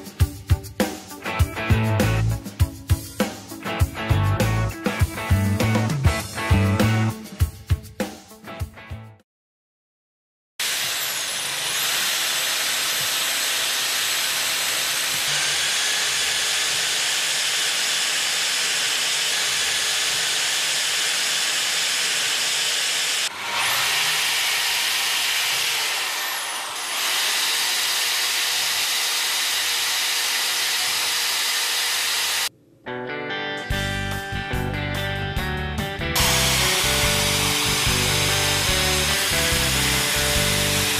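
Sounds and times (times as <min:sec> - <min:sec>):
power tool motor whining: 0:10.6 - 0:32.5, 0:36.2 - 0:40.9.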